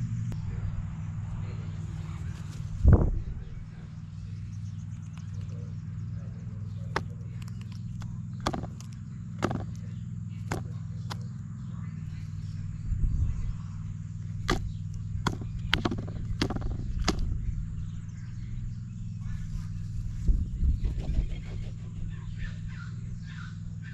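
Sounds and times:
steady low hum: 0.0 - 23.9
beak pecking plastic tray: 6.9 - 11.3, 14.4 - 17.3.

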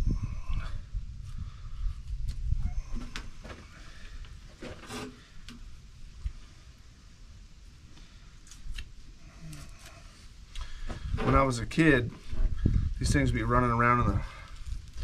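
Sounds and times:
low rumble: 0.0 - 4.2
knife scraping and cutting hide: 4.6 - 5.2.

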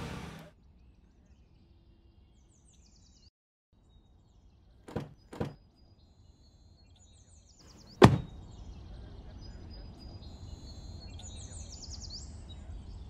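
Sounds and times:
car door latch clicks: 4.9 - 5.6, 8.0 - 8.3.

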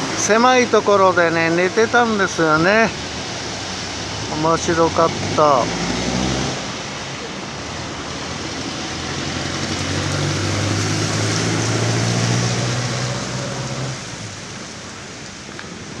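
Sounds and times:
tyres hissing on wet street: 0.0 - 16.0
vehicle engine drone passing: 3.4 - 14.4.

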